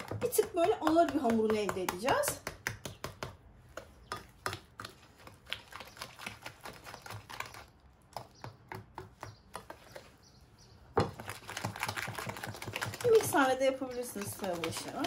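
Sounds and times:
whisk clicking against bowl: 0:11.2 - 0:15.0.

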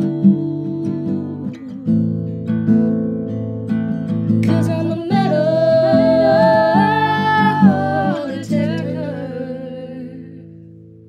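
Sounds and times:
strummed acoustic guitar: 0:00.0 - 0:11.0
several voices singing: 0:04.5 - 0:10.3.

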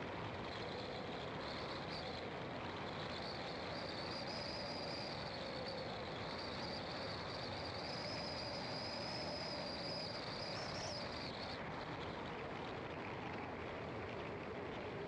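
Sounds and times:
high insect chorus: 0:00.4 - 0:12.4.

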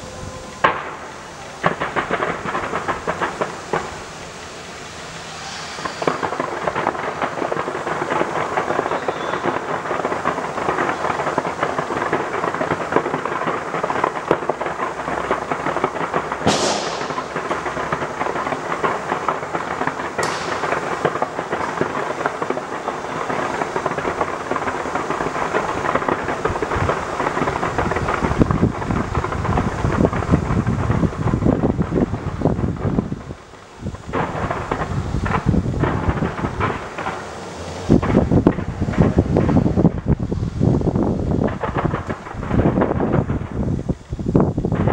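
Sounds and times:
deep fireworks booms: 0:00.0 - 0:44.9
fireworks crackling bangs: 0:00.0 - 0:44.9
high falling whistles: 0:05.2 - 0:06.4, 0:08.8 - 0:09.6.

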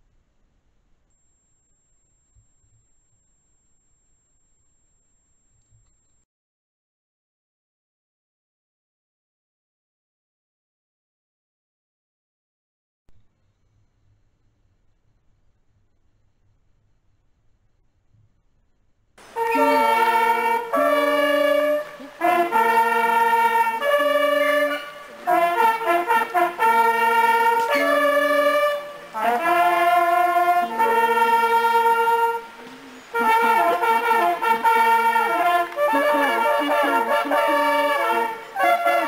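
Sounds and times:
horn melody of long notes: 0:19.2 - 0:39.0.

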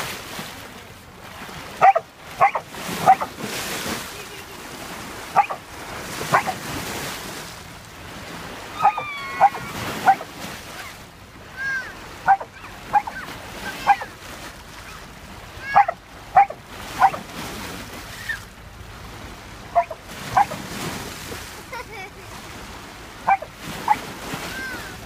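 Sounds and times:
dog barking in high yips: 0:01.8 - 0:03.3, 0:05.4 - 0:05.6, 0:06.3 - 0:06.6, 0:08.8 - 0:10.2, 0:12.3 - 0:14.1, 0:15.6 - 0:17.2, 0:19.8 - 0:20.6, 0:23.3 - 0:24.0.

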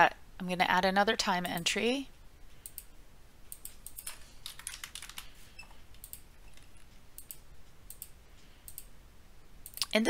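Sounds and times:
mouse clicking: 0:02.6 - 0:02.9, 0:03.5 - 0:04.2, 0:05.9 - 0:08.9
keyboard typing: 0:03.5 - 0:08.9.

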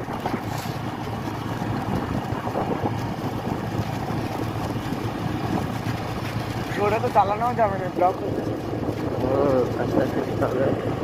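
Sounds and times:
scooter engine running: 0:00.0 - 0:11.0
wind rushing on microphone: 0:00.0 - 0:11.0.

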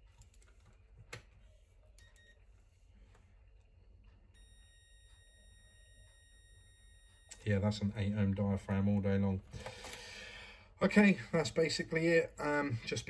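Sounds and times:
multimeter beep: 0:02.0 - 0:02.4, 0:04.3 - 0:07.5.

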